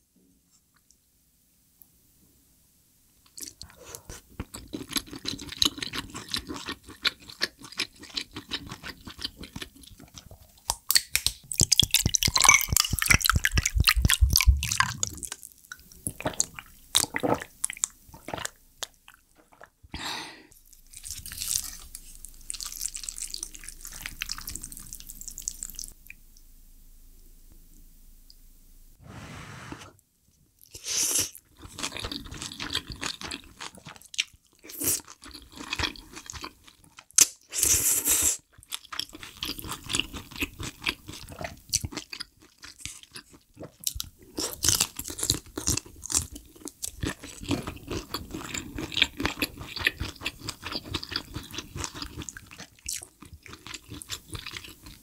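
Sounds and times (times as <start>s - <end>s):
close chewing: 3.3s - 19.8s, 38.5s - 55.0s.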